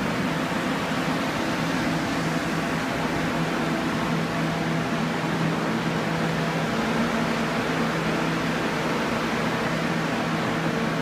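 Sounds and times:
drying fans whirring: 0.0s - 11.0s.

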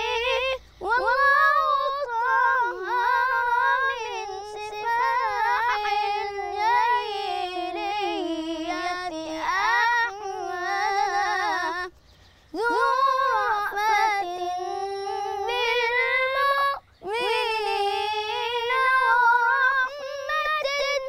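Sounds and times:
boy chanting religious praise: 0.0s - 12.0s.

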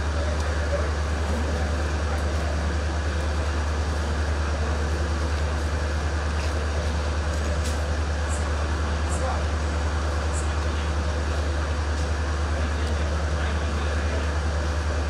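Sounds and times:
low mechanical drone: 0.0s - 15.0s
noisy rumble: 0.0s - 15.0s.

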